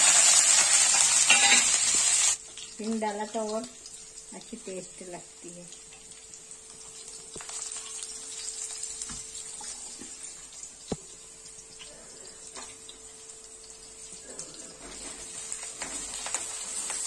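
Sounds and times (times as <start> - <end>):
seeds and chillies sizzling in oil: 0.0 - 17.0.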